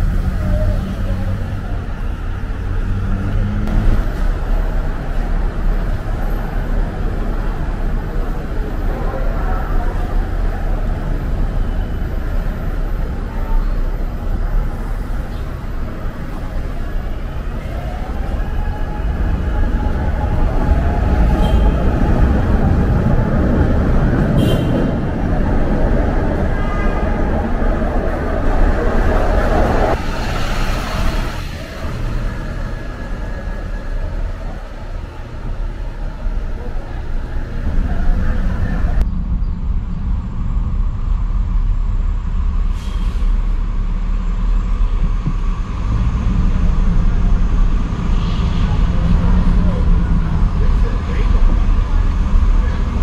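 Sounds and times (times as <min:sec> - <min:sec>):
vehicle engine rumbling: 0:00.0 - 0:53.0.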